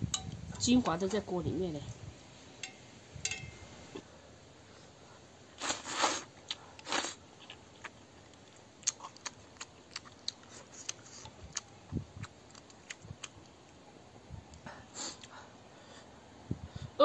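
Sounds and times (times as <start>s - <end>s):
person slurping noodles: 5.6s - 7.2s
chewing with wet clicks: 6.4s - 13.8s.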